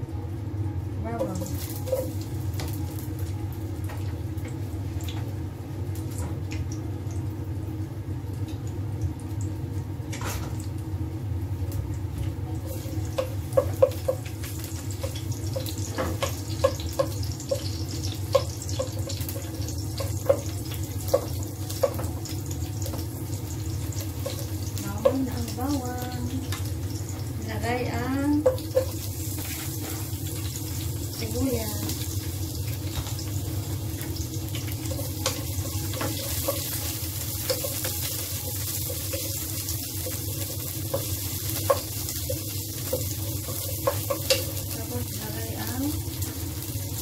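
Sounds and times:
garlic sizzling in hot oil: 0.8s - 47.0s.

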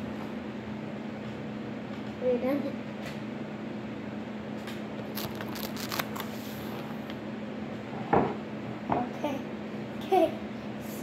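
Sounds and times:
steady low hum: 0.0s - 11.0s
paper napkins rustling: 5.0s - 7.0s.

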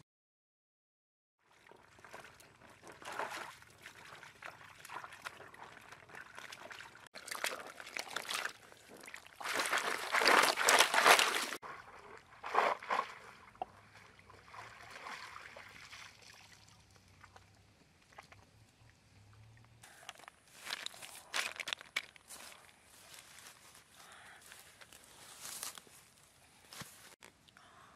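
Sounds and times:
water sloshing and splashing: 1.4s - 23.8s.

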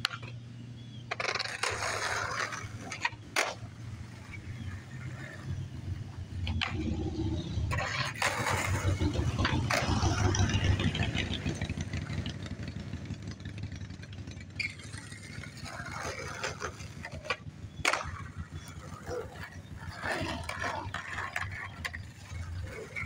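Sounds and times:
skateboard clacks: 0.0s - 7.0s, 7.7s - 10.5s, 14.6s - 23.0s
skateboard wheels rolling on pavement: 0.0s - 23.0s.

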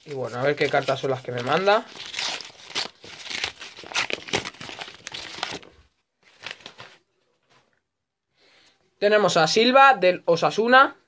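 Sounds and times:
paper wrapper crinkling: 0.0s - 7.0s.

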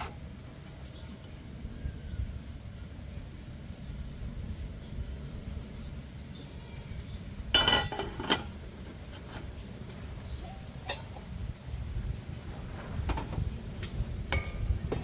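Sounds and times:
metal cook pots clattering: 7.5s - 9.4s, 10.8s - 11.2s.

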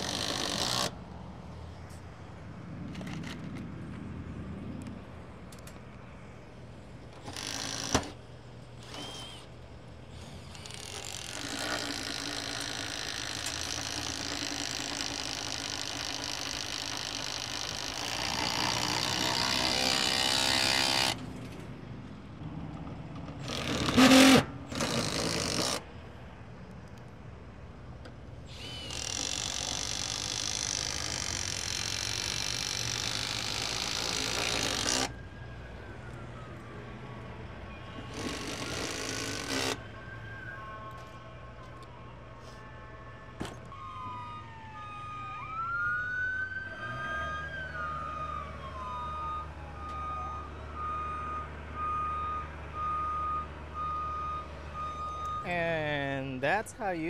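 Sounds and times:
handheld power drill running: 0.0s - 0.9s, 7.2s - 8.2s, 8.8s - 9.5s, 10.1s - 21.2s, 23.4s - 25.8s, 28.5s - 35.1s, 38.0s - 39.8s.

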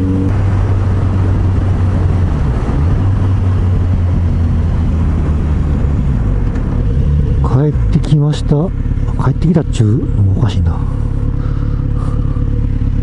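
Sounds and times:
wind rushing over microphone: 0.0s - 7.5s
motorcycle engine droning: 0.0s - 13.0s.

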